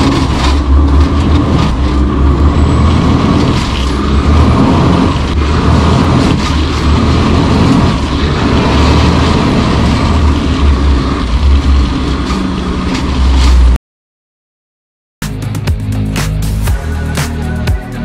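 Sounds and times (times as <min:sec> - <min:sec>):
truck diesel engine rumble: 0:00.0 - 0:13.8, 0:15.4 - 0:18.0
tyre and road noise on gravel: 0:00.0 - 0:13.8.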